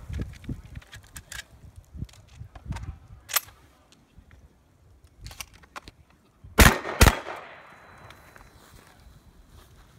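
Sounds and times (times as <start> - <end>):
loud shotgun blasts: 6.6 - 7.8.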